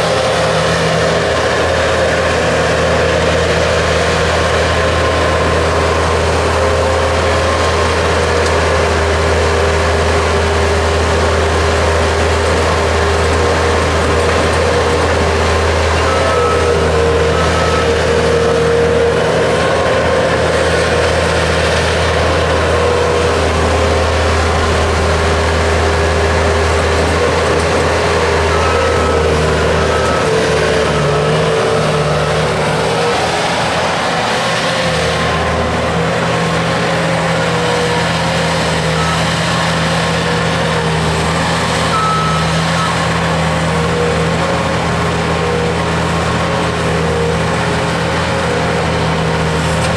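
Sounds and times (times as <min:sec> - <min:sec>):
diesel engine running: 0:00.0 - 0:49.9.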